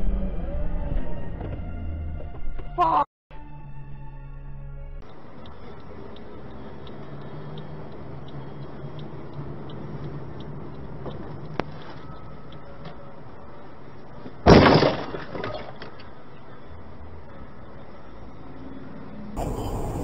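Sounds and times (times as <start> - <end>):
car road hum: 5.0 - 14.2, 16.1 - 20.0
car crash: 14.4 - 16.0.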